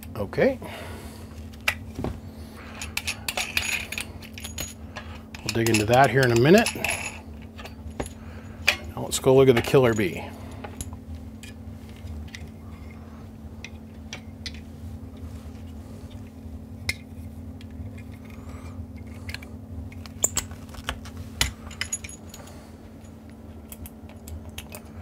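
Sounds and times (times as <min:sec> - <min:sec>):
steady low hum: 0:00.0 - 0:25.0
clicks and clinks of handling: 0:02.7 - 0:08.9, 0:19.0 - 0:25.0.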